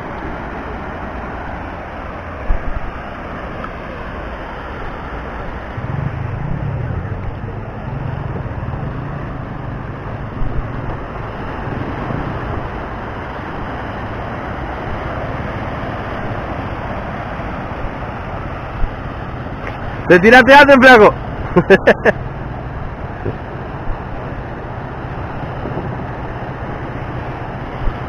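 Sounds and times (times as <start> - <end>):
small waves breaking on sand: 0.0 - 28.0
wind on microphone: 5.3 - 19.8, 22.6 - 28.0
low rumble: 5.4 - 13.0.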